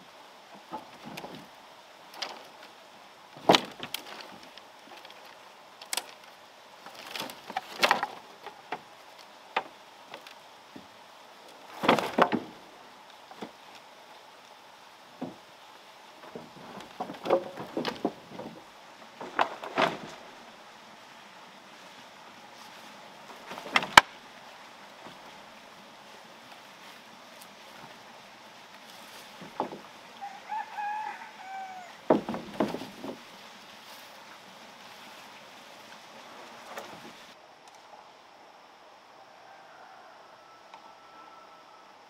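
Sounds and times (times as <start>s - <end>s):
wooden poles clattering: 0.0s - 37.4s.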